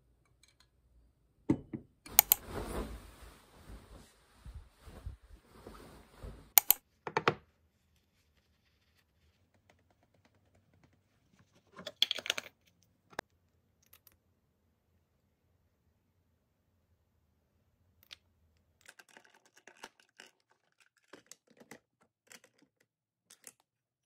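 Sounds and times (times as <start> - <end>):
fabric rustling: 2.1 - 6.6
makeup containers clattering: 11.8 - 12.6.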